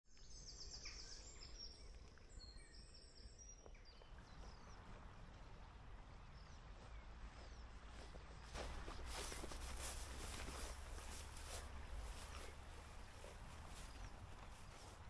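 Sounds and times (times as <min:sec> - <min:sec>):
songbird chirps and trills: 0:00.1 - 0:15.0
steady low rumble: 0:04.2 - 0:15.0.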